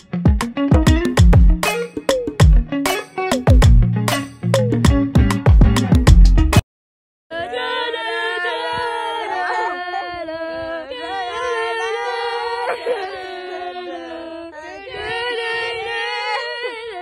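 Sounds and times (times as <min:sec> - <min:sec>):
choir singing harmonies: 0:07.3 - 0:17.0.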